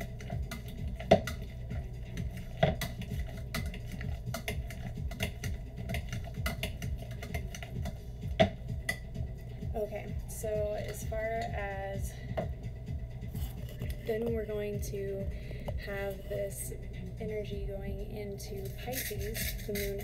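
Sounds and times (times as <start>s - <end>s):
potato masher knocking metal pot: 2.5s - 9.0s.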